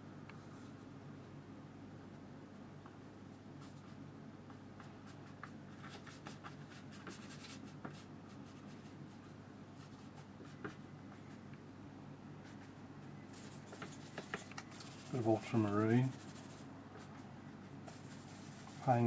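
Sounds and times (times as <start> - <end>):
low steady hum: 0.0 - 19.0
brush scratching on paper: 5.0 - 10.6, 12.4 - 17.2, 17.9 - 19.0.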